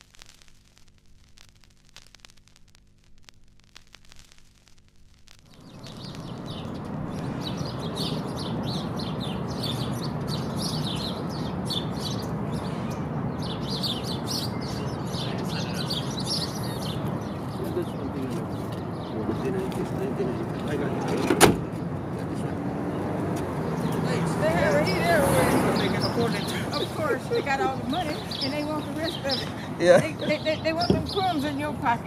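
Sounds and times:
faint hum: 0.0 - 10.0
low background rush: 4.6 - 32.0
small birds chirping: 5.5 - 32.0.

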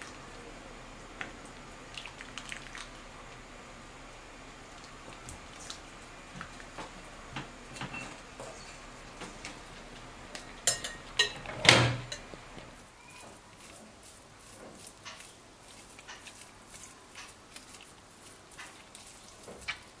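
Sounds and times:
metal forks clinking on pot: 10.6 - 12.3.

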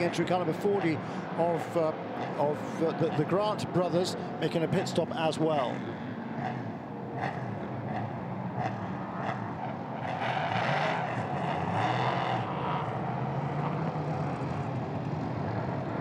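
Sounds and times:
race car engines running: 0.0 - 16.0.

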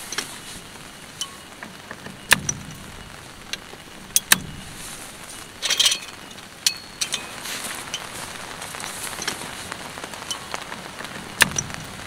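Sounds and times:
fabric rustling: 4.5 - 12.0.

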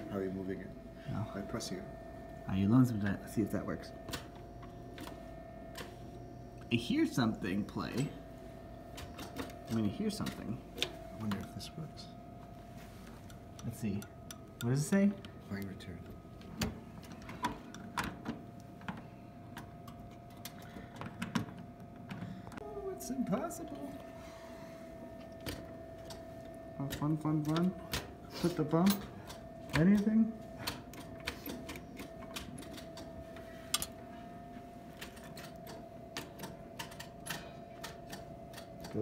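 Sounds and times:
faint steady hum: 0.0 - 39.0
jukebox coin mechanism clicks: 35.0 - 39.0.

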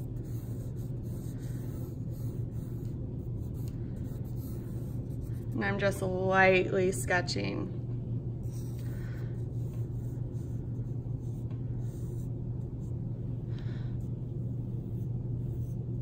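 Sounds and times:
pencil scratching on paper: 0.0 - 5.6, 8.4 - 13.0, 14.6 - 16.0
low hum: 0.0 - 16.0.

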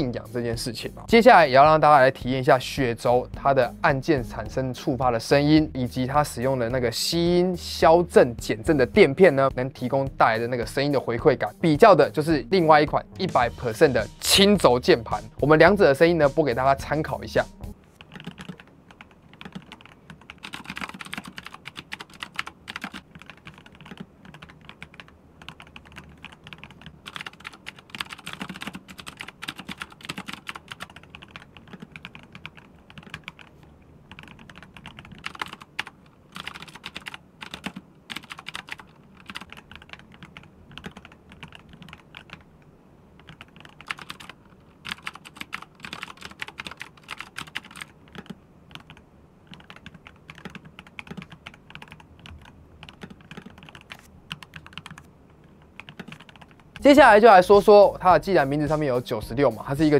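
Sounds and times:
fast typing on mechanical keyboard: 18.0 - 33.5, 34.1 - 42.5, 43.2 - 56.9
clicky keyboard keystrokes: 43.2 - 55.0.

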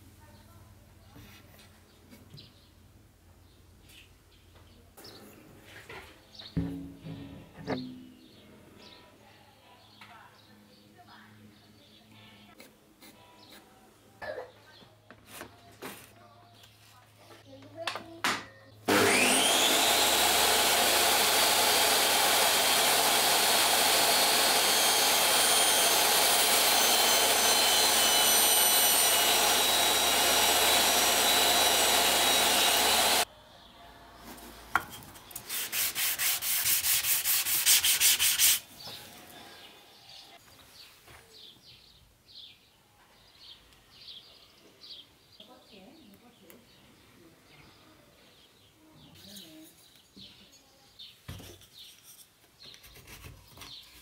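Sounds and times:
table saw whining and cutting wood: 18.9 - 33.3
rhythmic rubbing strokes: 35.5 - 38.7.

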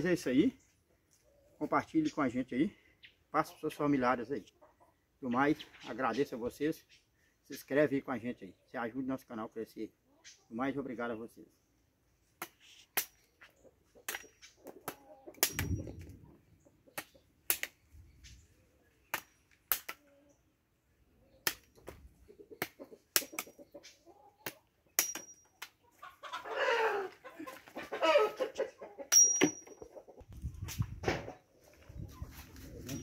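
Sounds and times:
chickens calling: 13.2 - 19.2, 19.9 - 30.4
machete chopping stem: 25.0 - 25.3.

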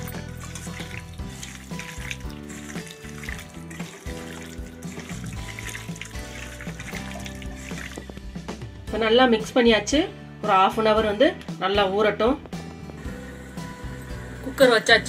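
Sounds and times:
wet squelching of hand mixing meat: 0.0 - 8.6
background music: 0.0 - 15.0.

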